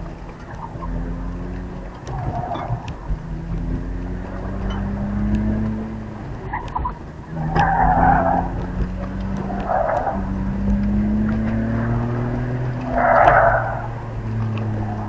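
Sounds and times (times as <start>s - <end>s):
car engine under load: 0.0s - 15.0s
tyres squealing: 6.3s - 15.0s.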